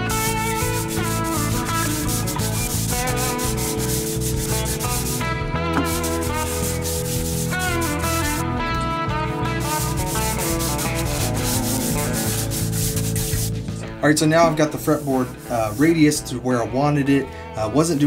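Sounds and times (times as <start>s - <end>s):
sanding block rubbing on wood: 0.0s - 8.4s, 9.6s - 13.6s, 14.8s - 16.2s
guitar background music: 0.0s - 18.0s.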